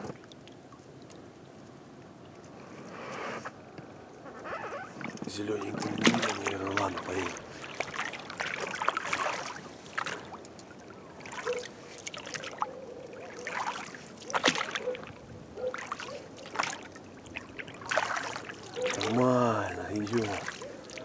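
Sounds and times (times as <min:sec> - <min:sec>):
oars splashing in water: 0:00.0 - 0:01.3, 0:04.2 - 0:21.0.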